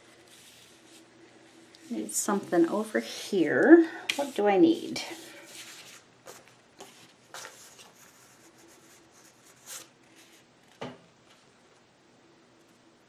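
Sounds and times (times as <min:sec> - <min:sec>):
paper rustling: 0:05.1 - 0:08.2.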